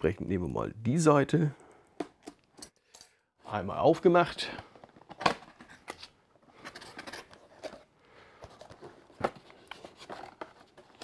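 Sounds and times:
cardboard rustling: 0:04.6 - 0:11.0.

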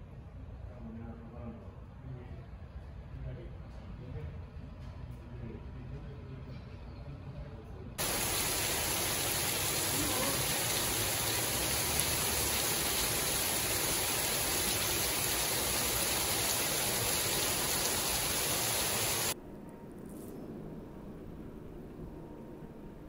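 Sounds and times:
heavy rain on street: 0:08.0 - 0:19.4.

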